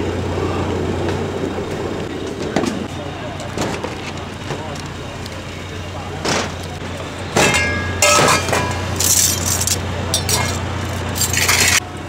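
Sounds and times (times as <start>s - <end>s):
metal bowls clattering on counter: 7.4s - 10.6s.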